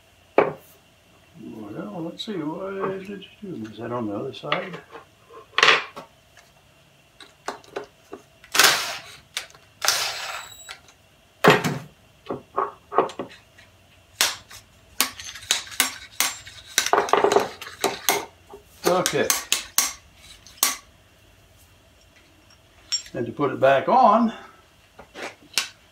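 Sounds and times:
metal tools clanking: 22.0s - 23.2s.

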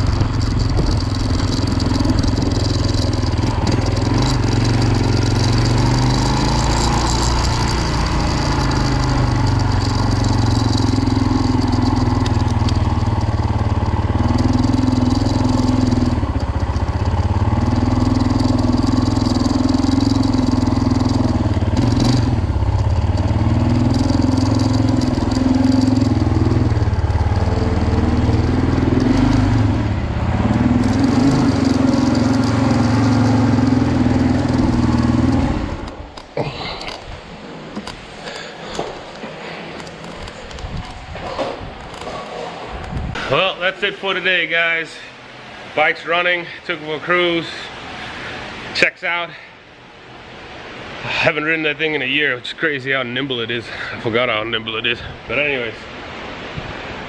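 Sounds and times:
motorcycle engine running: 0.0s - 36.5s.

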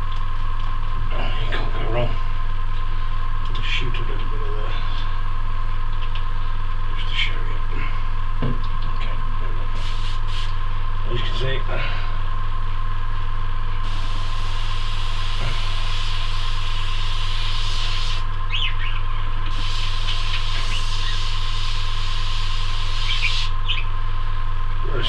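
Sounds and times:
air compressor humming: 9.6s - 10.8s, 13.8s - 18.6s, 19.3s - 24.0s
airbrush hissing: 9.8s - 10.6s, 13.8s - 18.3s, 19.5s - 23.6s.

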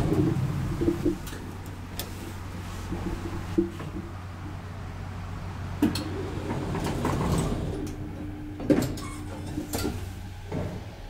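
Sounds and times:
elevator door motor tone: 5.8s - 11.0s.

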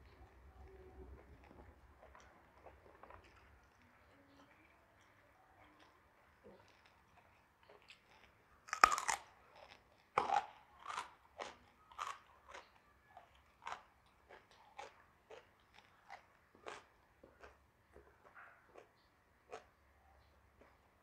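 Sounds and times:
chewing crunches: 0.1s - 21.0s
crunchy bites: 6.6s - 17.6s.

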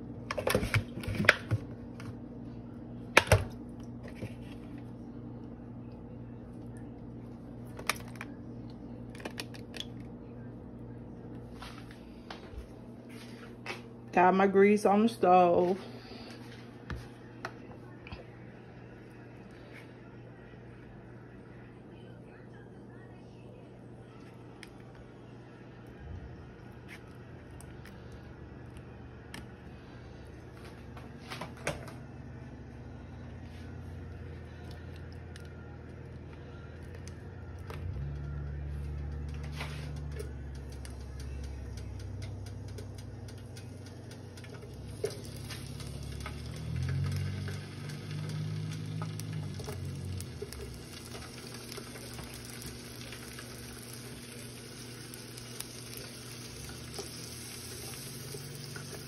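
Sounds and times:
low electrical hum: 0.0s - 59.0s.

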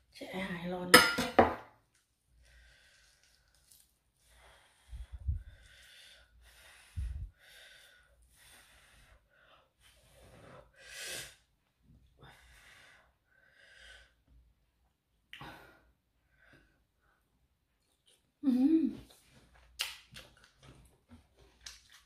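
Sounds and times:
person breathing and eating: 2.3s - 14.3s.

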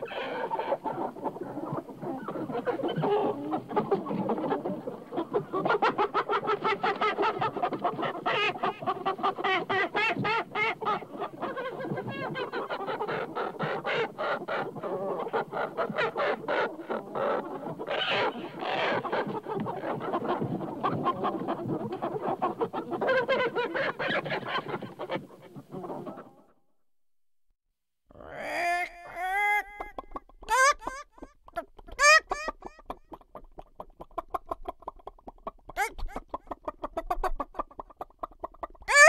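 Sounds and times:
hens clucking: 0.0s - 26.4s, 28.2s - 39.0s
louder higher hen calls: 28.2s - 31.3s.

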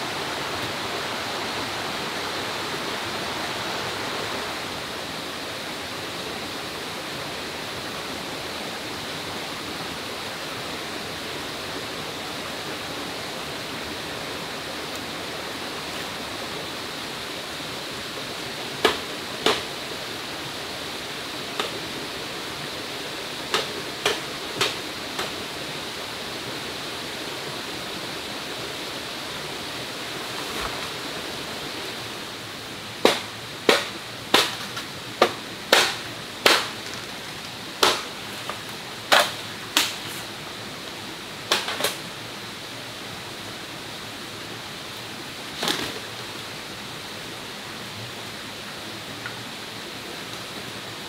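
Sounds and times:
forest background hiss: 0.0s - 51.0s.

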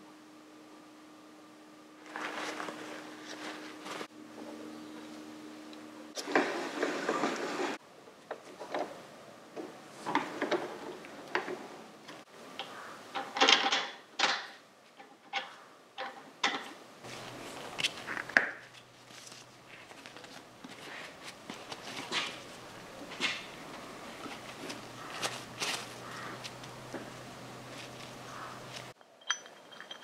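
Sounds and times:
metal tools clinking: 29.0s - 30.0s.

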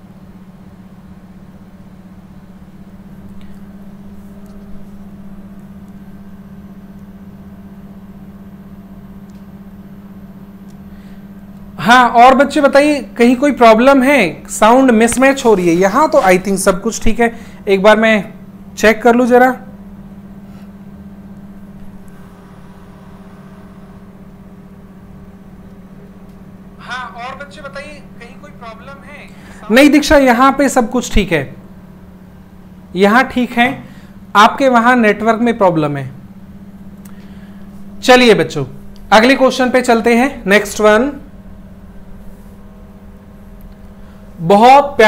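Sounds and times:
low hum with pulsing buzz: 0.0s - 45.0s
low-pitched hum: 19.7s - 29.8s.

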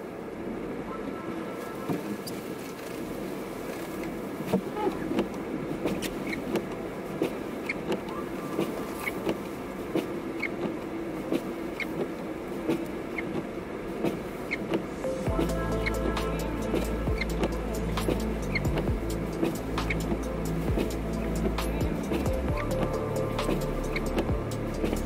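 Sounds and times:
car road and engine noise: 0.0s - 25.0s
sharp ticks and knocks: 15.3s - 25.0s.

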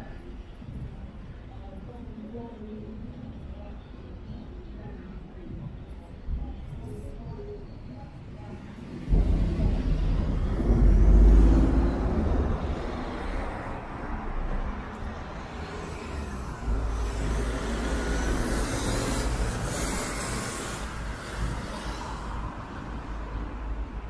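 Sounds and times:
heavy vehicle engine rumble: 8.2s - 24.0s.

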